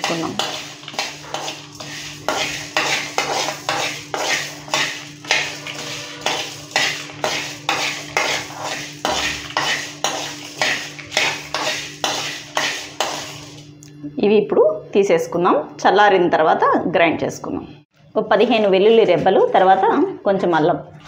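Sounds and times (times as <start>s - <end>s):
spoon scraping seeds in metal pan: 0.0s - 13.7s.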